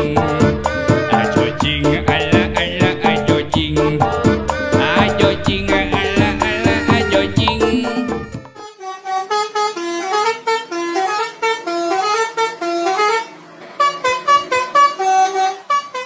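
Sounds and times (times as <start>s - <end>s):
musical air horns playing tune: 4.6s - 16.0s.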